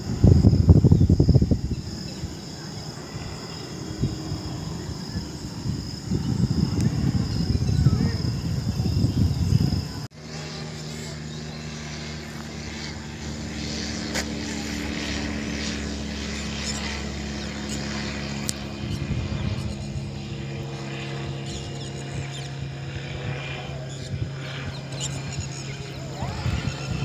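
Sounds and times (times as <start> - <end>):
propeller plane drone: 0.0 - 27.0.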